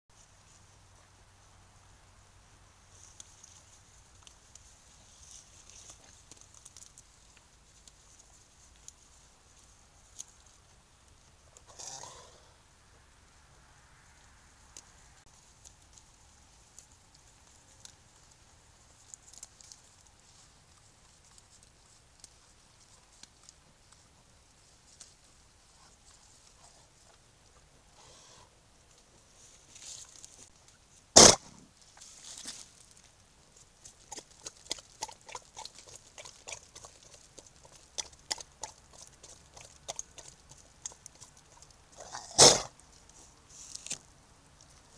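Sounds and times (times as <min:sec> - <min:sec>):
faint hiss: 0:00.1 - 0:34.1
moose chewing vegetation: 0:02.9 - 0:12.4, 0:14.7 - 0:28.3, 0:31.7 - 0:44.9
animal sneeze: 0:31.2 - 0:31.6, 0:42.0 - 0:42.7
animal chewing food: 0:33.8 - 0:43.3.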